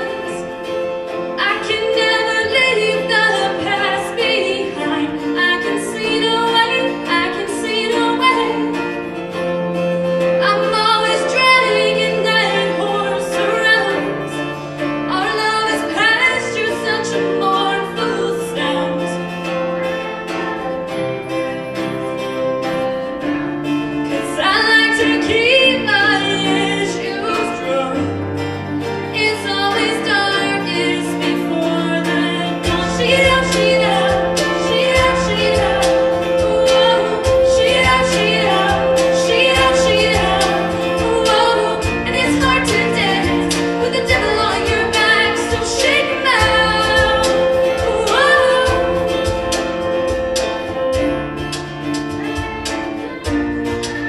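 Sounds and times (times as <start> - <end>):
female choir singing pop song: 29.2 - 51.1.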